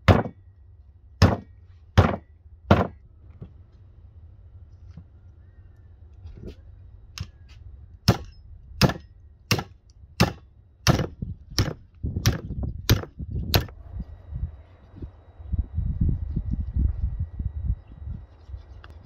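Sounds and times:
hatchet chopping ribs on wood block: 0.0 - 0.4, 1.2 - 3.0, 8.1 - 13.7.

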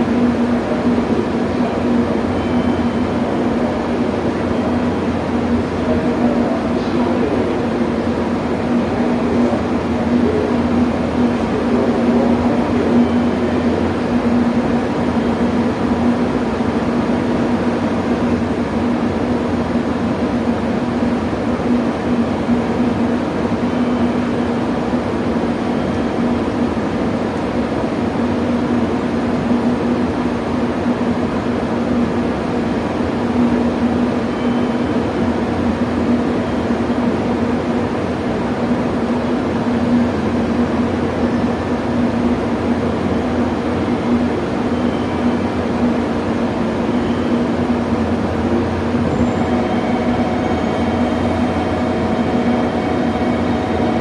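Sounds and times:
train equipment humming: 0.0 - 54.0.

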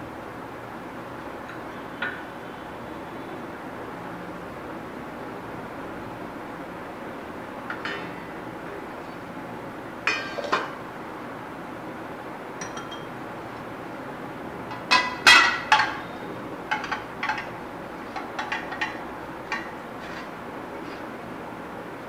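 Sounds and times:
glass bowl clinking on steel plate: 10.1 - 10.7, 12.6 - 13.1, 14.7 - 16.0.

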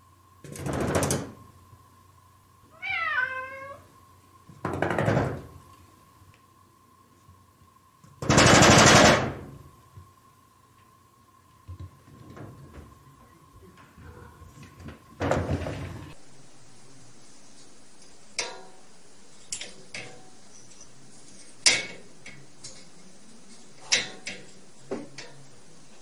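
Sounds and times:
glass door rattling and banging: 0.4 - 1.4, 4.6 - 5.6, 15.2 - 16.0
cat meowing: 2.7 - 3.9.

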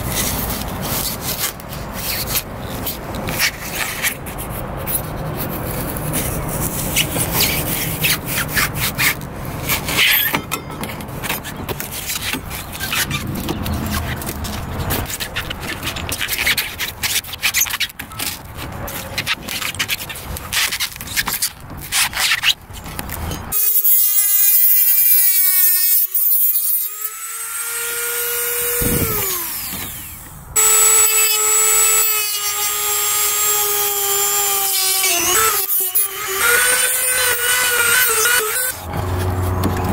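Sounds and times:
metal scraper grating foam: 0.0 - 39.9
rotary tool whining: 26.0 - 39.9.

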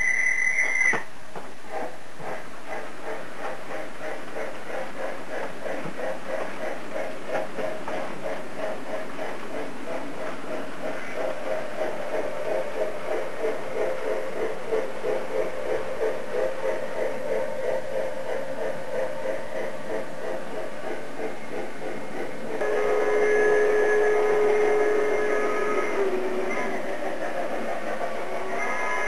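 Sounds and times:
multi-tone locomotive whistle: 0.0 - 1.1, 22.6 - 26.8, 28.2 - 29.0
model train running: 0.0 - 29.0.

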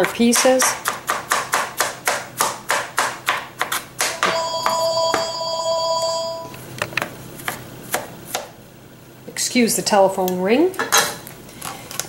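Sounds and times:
knife chopping on plastic board: 0.0 - 4.8, 7.0 - 8.5
telephone ringing: 4.1 - 6.6.

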